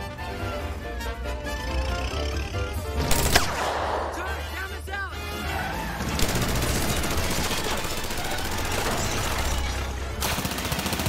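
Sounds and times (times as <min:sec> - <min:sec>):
automatic gunfire: 0:06.0 - 0:11.0.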